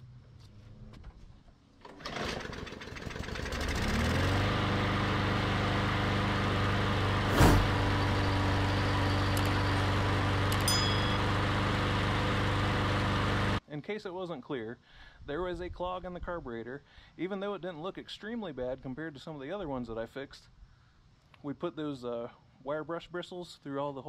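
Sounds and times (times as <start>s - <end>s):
lawn mower engine running: 1.8s - 13.6s.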